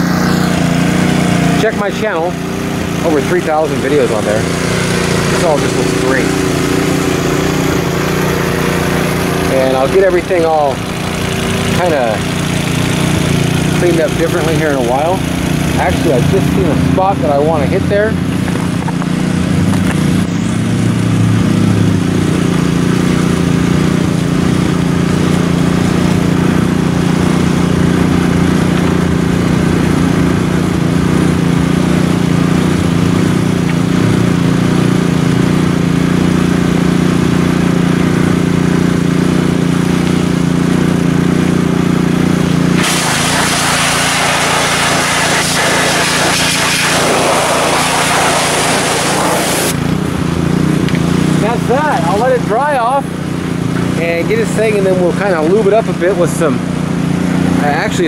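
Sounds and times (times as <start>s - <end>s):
pressure washer engine running: 0.0s - 58.0s
hiss: 42.8s - 49.8s.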